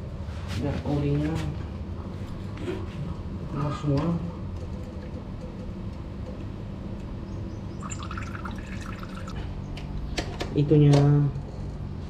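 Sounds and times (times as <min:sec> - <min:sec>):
oil trickling into a pan: 0:07.8 - 0:09.4.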